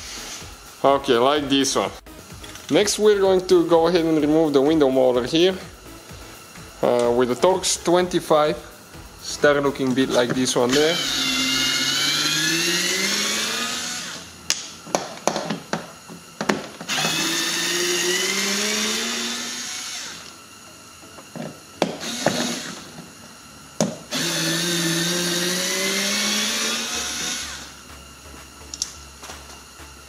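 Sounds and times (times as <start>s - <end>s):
electric screwdriver whine: 0.0s - 0.7s, 9.4s - 30.0s.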